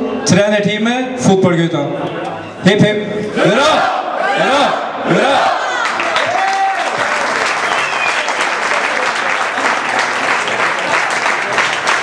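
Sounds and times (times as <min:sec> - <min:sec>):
crowd cheering: 0:03.4 - 0:12.0
crowd applauding: 0:05.8 - 0:12.0.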